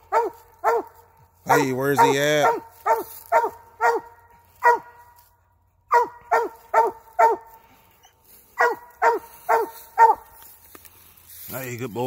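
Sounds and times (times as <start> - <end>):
dog barking: 0.0 - 5.1, 5.9 - 7.6, 8.5 - 10.4.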